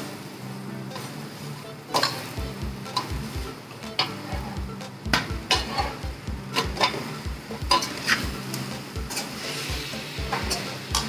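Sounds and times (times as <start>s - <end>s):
food sizzling in pan: 0.0s - 11.0s
steel spoon scraping pan: 1.9s - 3.2s, 3.9s - 4.6s, 5.5s - 6.0s, 6.6s - 11.0s.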